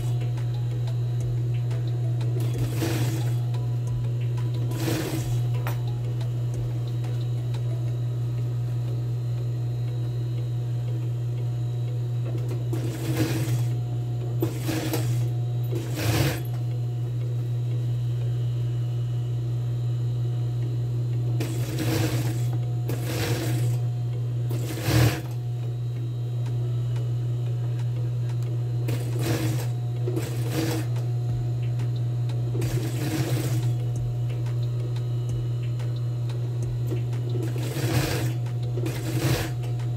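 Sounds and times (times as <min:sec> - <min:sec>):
low motor hum: 0:00.0 - 0:39.9
sewing machine stitching: 0:02.4 - 0:03.4, 0:04.7 - 0:05.5, 0:12.7 - 0:13.8, 0:14.4 - 0:16.5, 0:21.4 - 0:23.8, 0:24.5 - 0:25.4, 0:28.9 - 0:31.0, 0:32.6 - 0:33.8, 0:37.4 - 0:39.7.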